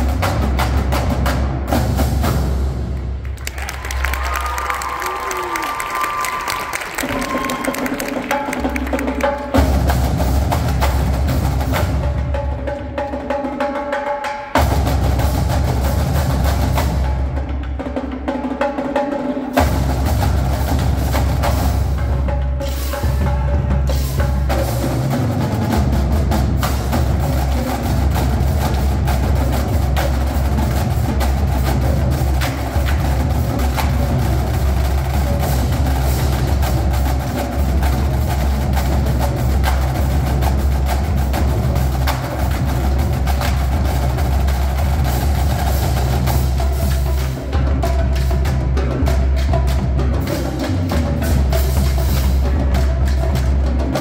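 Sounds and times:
bass drums: 0.0s - 5.5s, 7.0s - 13.4s, 14.6s - 18.5s, 19.5s - 54.0s
snare drums: 0.0s - 54.0s
tenor drums: 0.0s - 54.0s
cymbals: 19.4s - 54.0s.

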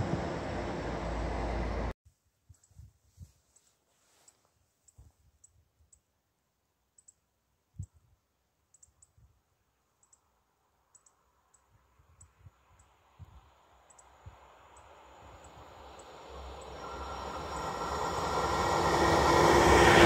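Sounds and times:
distant train rushing: 0.0s - 1.9s, 13.7s - 20.0s.

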